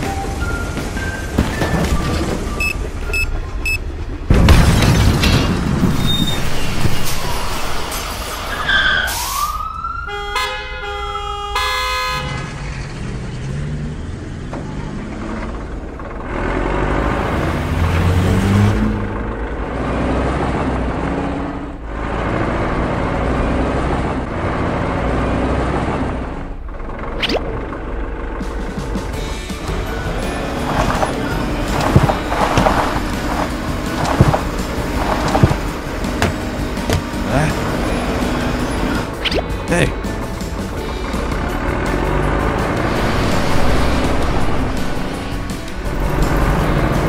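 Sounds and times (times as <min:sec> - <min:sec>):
siren-like wail: 0:07.0 - 0:10.5
horn-like tones: 0:10.1 - 0:12.5
vehicle engine running: 0:12.3 - 0:47.0.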